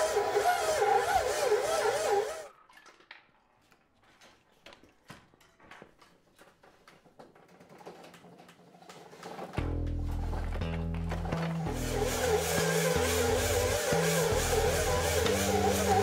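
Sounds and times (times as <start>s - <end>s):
stand mixer motor whine: 0.0s - 2.5s, 11.5s - 16.0s.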